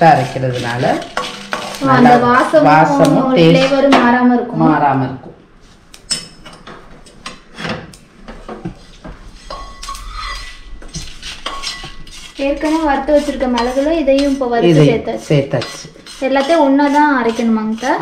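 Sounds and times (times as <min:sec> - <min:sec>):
wooden spatula scraping iron pan: 0:00.0 - 0:03.9, 0:08.4 - 0:18.0.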